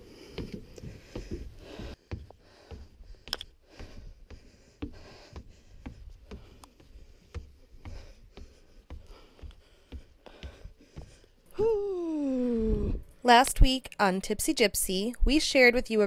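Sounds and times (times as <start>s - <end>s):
footsteps on wooden stairs: 0.0s - 11.6s.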